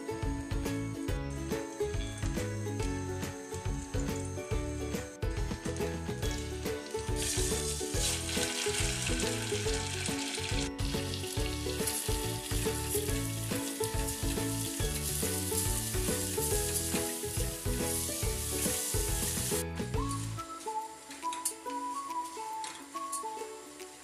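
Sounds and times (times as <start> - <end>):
background music: 0.0 - 24.0
butter sizzling in a pot: 5.6 - 21.1
rice poured into a pot: 7.2 - 19.6.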